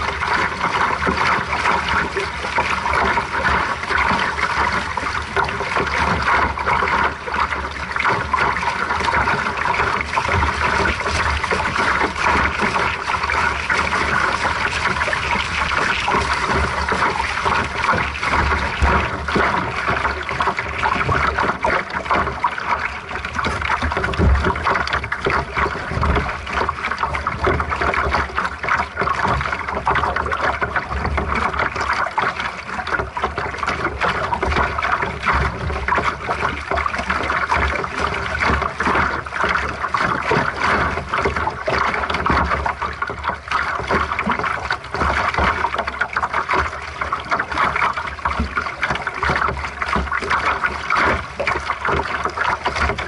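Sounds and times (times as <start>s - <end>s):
wind rumble on microphone: 0.0s - 32.2s
water splashing along hull: 0.0s - 53.0s.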